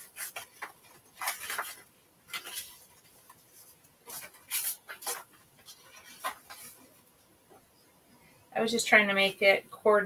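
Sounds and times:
paper rustling: 0:00.0 - 0:07.0.

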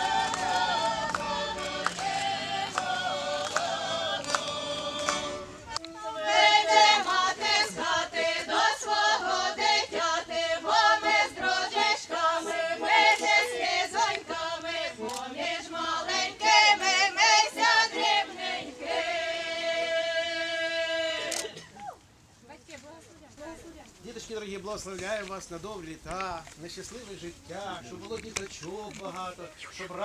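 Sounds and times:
choir singing: 0:00.0 - 0:21.6.

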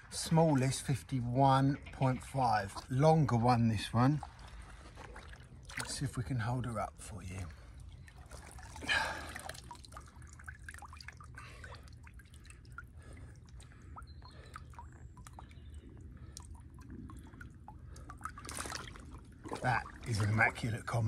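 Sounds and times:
water splash: 0:04.2 - 0:06.1, 0:17.9 - 0:20.7
water dripping off a fish: 0:07.5 - 0:20.7.

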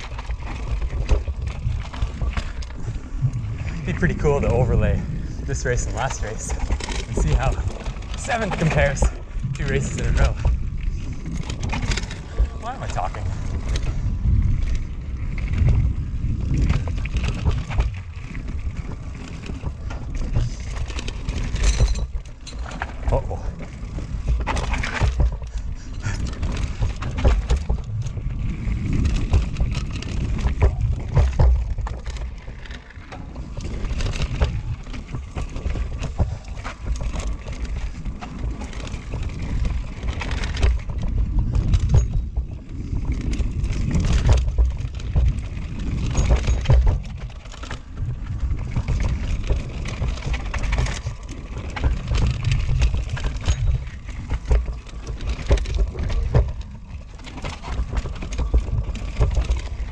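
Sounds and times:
mountain bike rattling over rocks: 0:00.0 - 0:59.9
heavy low rumble: 0:00.8 - 0:47.0.

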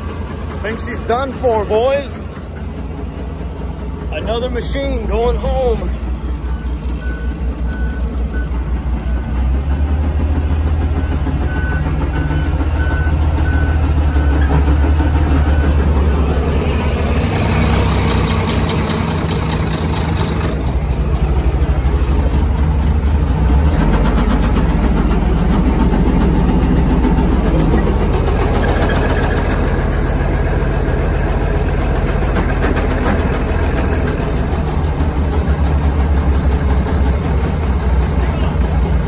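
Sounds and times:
diesel engine running with rod knock: 0:00.0 - 0:39.0.

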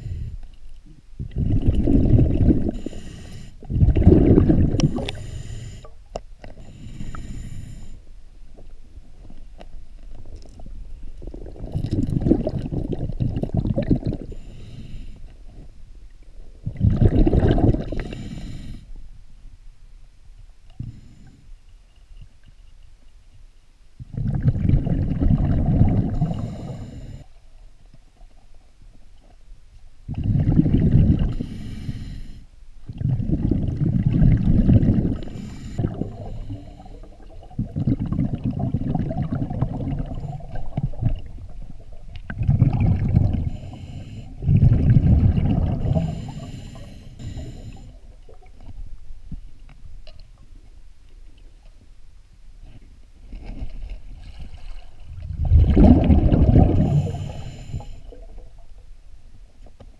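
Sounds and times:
bubbling underwater: 0:01.2 - 0:02.9, 0:03.7 - 0:05.2, 0:11.2 - 0:14.4, 0:16.6 - 0:18.1, 0:24.1 - 0:26.8, 0:30.1 - 0:31.4, 0:32.9 - 0:36.3, 0:36.9 - 0:43.7, 0:44.4 - 0:46.5, 0:54.2 - 0:58.8
diver breathing through regulator: 0:02.0 - 0:08.1, 0:14.2 - 0:15.3, 0:17.8 - 0:18.9, 0:26.0 - 0:27.4, 0:31.1 - 0:32.5, 0:35.0 - 0:37.2, 0:43.0 - 0:48.1, 0:55.6 - 0:58.2.

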